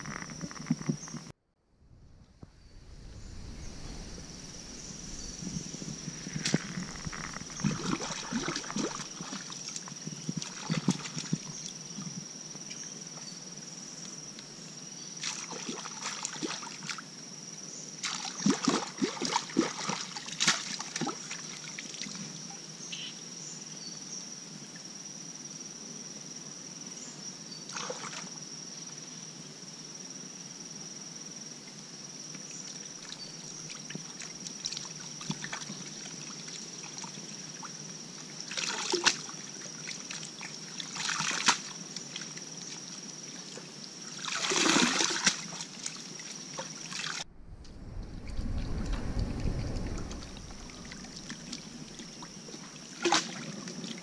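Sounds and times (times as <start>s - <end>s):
water sloshing and splashing: 5.4s - 11.7s, 18.0s - 22.1s, 33.0s - 37.7s, 38.5s - 54.0s.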